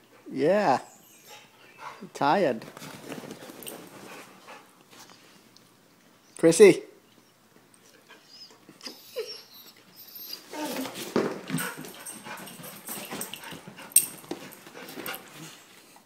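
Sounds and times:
dog whining: 0.8 - 2.0, 8.0 - 11.8
rustling: 2.6 - 5.4.

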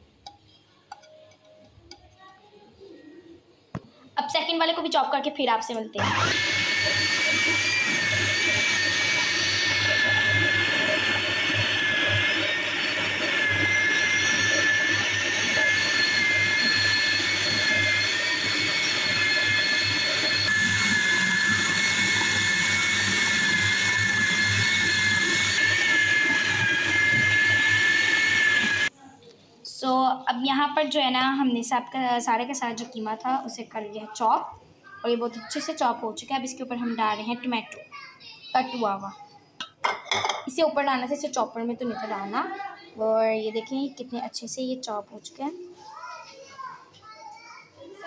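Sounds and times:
electric food chopper running: 6.0 - 28.9.

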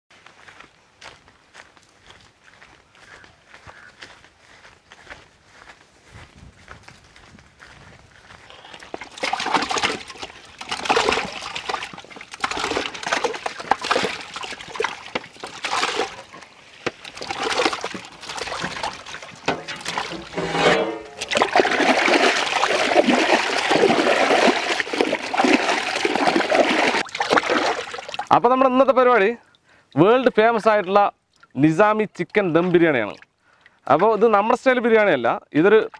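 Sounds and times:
water splashing in a metal pot: 8.5 - 28.4.

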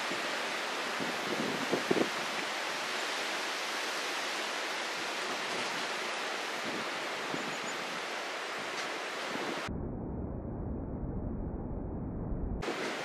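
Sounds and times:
steady outdoor hiss: 0.0 - 9.7.

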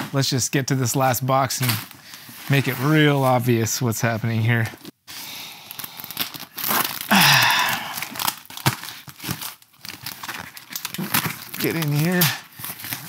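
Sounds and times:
cardboard and tape crinkling: 5.7 - 13.0
cardboard tearing rip: 6.1 - 7.2.

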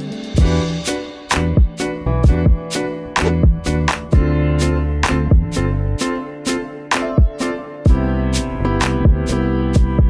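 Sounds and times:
background music with beat: 0.0 - 10.0.

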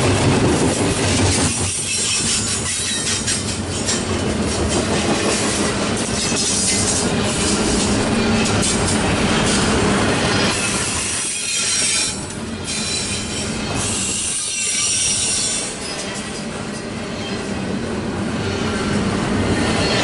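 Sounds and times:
train wheels rumbling on rails: 0.0 - 20.0
high wheel squeal: 1.6 - 4.1, 6.2 - 17.7.

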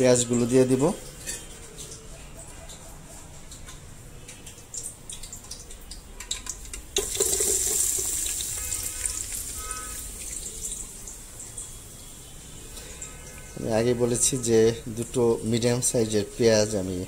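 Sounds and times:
hot oil sizzling: 6.4 - 13.6.

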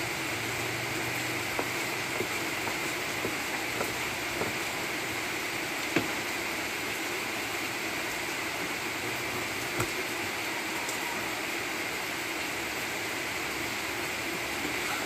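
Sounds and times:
knife knocking on wooden board: 1.5 - 4.8, 6.0 - 6.2.

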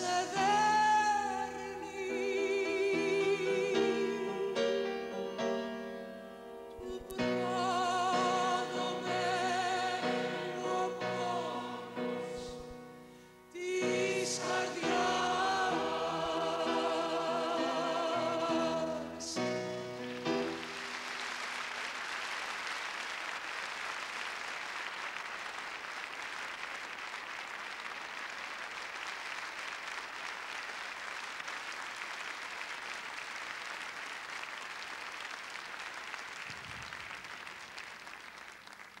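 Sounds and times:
song: 0.0 - 21.1
audience applauding: 19.2 - 39.0.

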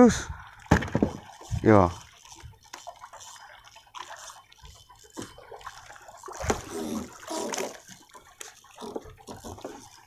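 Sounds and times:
water splashing against boat hull: 0.4 - 10.0
knocks on boat: 0.7 - 1.2.

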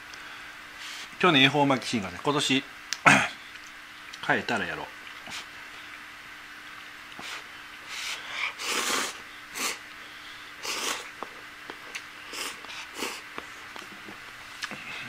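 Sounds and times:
person slurping noodles: 7.2 - 9.8, 10.6 - 11.1, 12.3 - 13.2.

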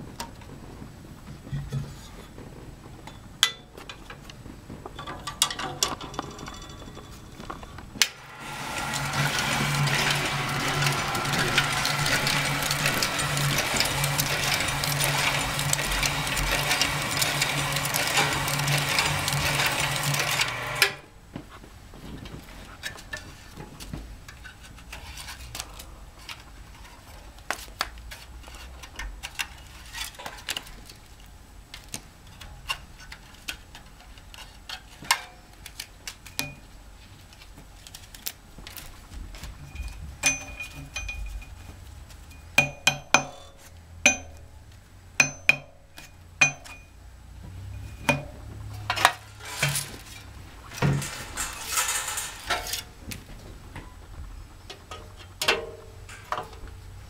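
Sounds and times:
card slitter machine running: 8.0 - 21.2, 47.7 - 53.1.

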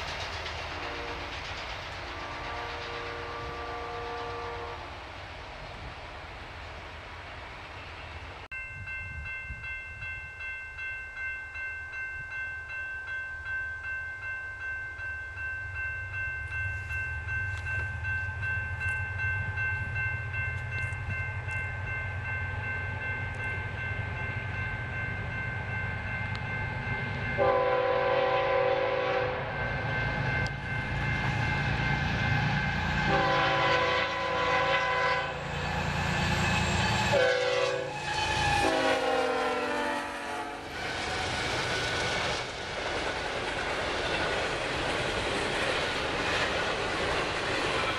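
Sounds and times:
diesel freight train rumble: 0.0 - 10.5, 14.6 - 47.9
locomotive air horn blasts: 0.7 - 1.3, 2.0 - 5.0, 27.4 - 29.6, 32.8 - 35.4, 36.6 - 40.8
crossing warning bell ringing: 8.5 - 40.9.

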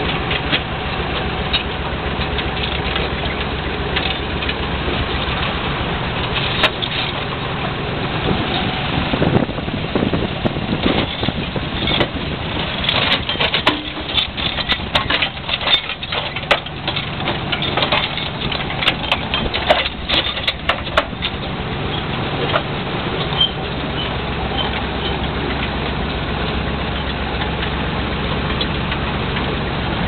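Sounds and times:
excavator low rumble: 0.0 - 30.0
chains clanking and rattling: 10.8 - 25.2.

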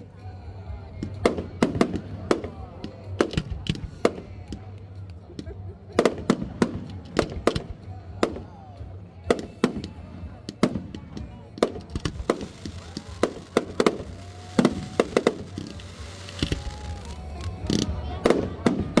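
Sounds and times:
fireworks bangs: 9.4 - 19.0.

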